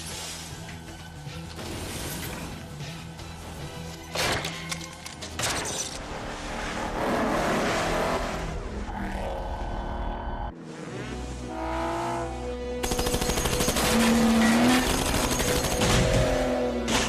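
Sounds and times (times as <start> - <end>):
background score music: 0.0 - 17.0
car engine revving: 6.1 - 12.8.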